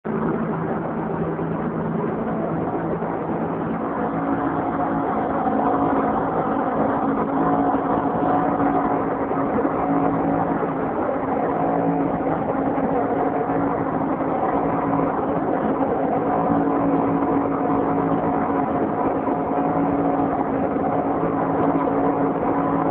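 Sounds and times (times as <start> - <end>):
outboard motors running: 0.1 - 22.9
rush of boat wake: 0.1 - 22.9.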